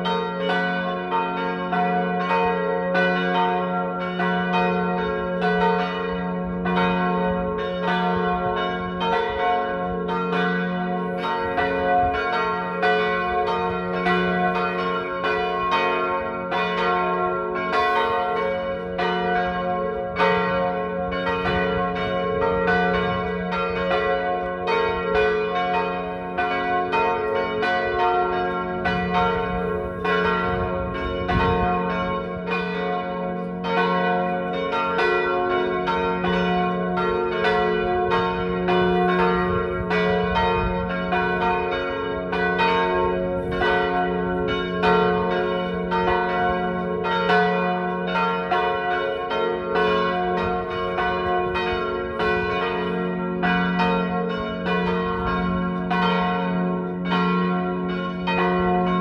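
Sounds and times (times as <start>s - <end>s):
church bells ringing: 0.0s - 59.0s.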